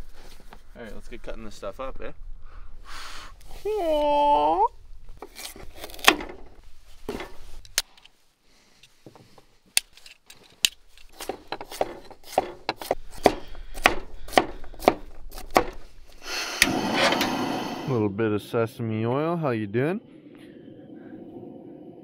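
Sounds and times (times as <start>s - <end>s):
knife chopping vegetables: 11.2s - 15.8s.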